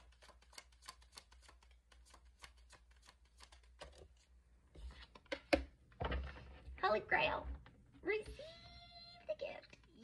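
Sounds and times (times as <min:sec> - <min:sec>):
cards being shuffled: 0:00.0 - 0:05.5.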